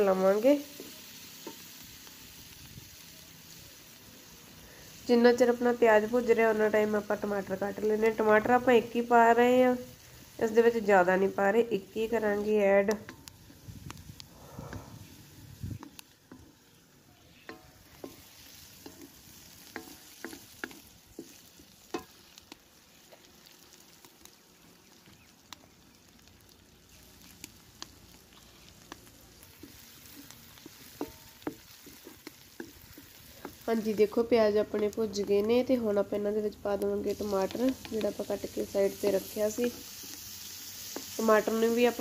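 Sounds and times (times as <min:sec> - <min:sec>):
onions sizzling in oil: 0:00.0 - 0:42.0
spatula scraping pan: 0:17.4 - 0:22.2, 0:29.5 - 0:35.5.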